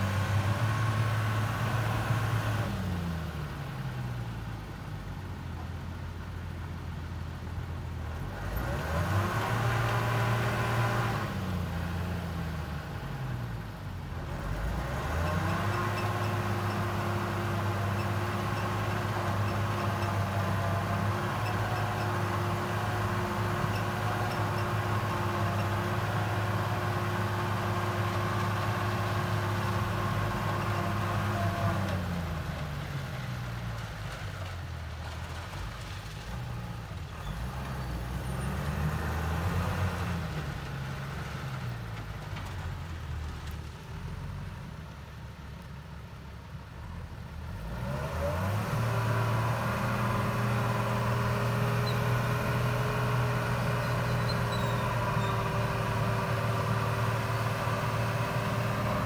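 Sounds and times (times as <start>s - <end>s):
truck diesel engine revving: 0.0s - 3.3s, 8.2s - 13.2s, 14.2s - 32.8s, 37.3s - 42.0s, 47.3s - 59.0s.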